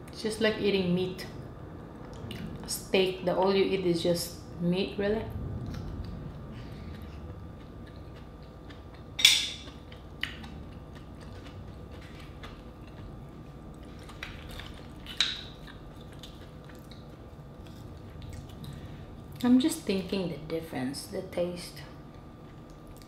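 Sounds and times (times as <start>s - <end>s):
close-up chewing: 5.7s - 19.4s, 22.4s - 23.0s.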